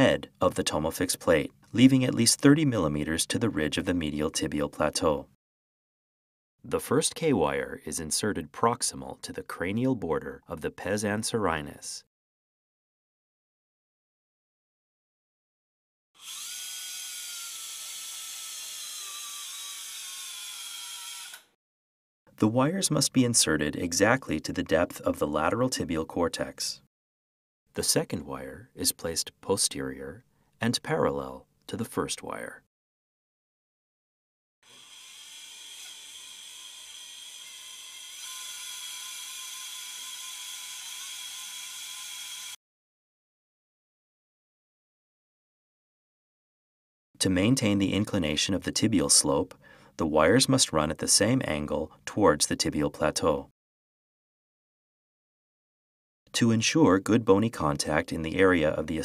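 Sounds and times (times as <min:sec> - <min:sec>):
wire driver whirring: 0:16.2 - 0:21.6, 0:34.6 - 0:42.6.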